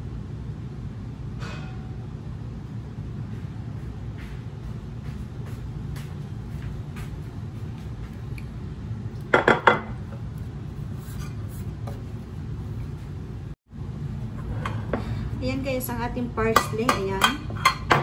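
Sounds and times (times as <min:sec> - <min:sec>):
steady low hum: 0:00.0 - 0:18.0
glass dish knocking on countertop: 0:09.4 - 0:09.9.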